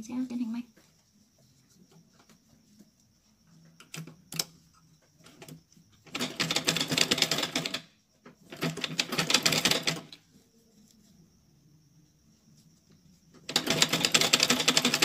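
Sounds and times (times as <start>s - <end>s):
sewing machine stitching: 6.1s - 7.8s, 8.5s - 10.1s, 13.5s - 15.0s.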